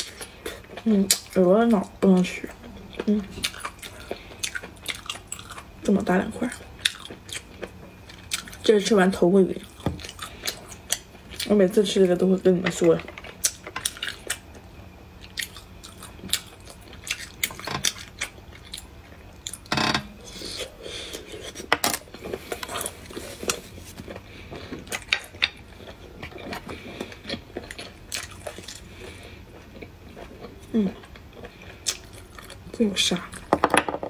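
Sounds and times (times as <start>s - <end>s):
person chewing: 2.4s - 5.8s, 6.4s - 8.7s, 9.6s - 11.5s, 13.2s - 32.7s.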